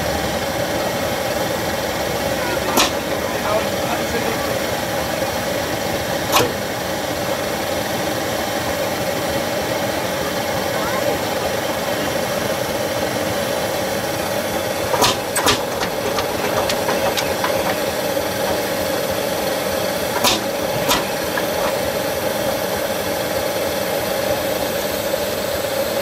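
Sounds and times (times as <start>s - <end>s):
tractor engine running: 0.0s - 25.5s
sharp knocks: 14.8s - 19.0s.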